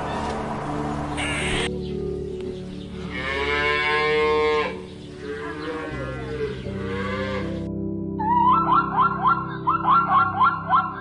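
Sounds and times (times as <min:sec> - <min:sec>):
cattle mooing: 0:03.1 - 0:07.6.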